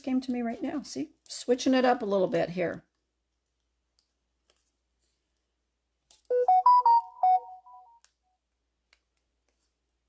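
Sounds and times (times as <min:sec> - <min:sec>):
electronic alert melody: 0:06.3 - 0:08.0.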